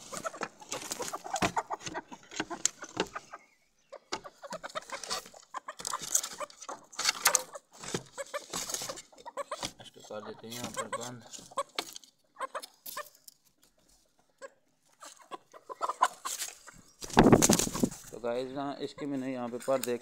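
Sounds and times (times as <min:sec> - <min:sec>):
rustling and clattering in pen: 0:00.0 - 0:03.3, 0:04.1 - 0:14.0
chickens clucking: 0:00.0 - 0:20.0.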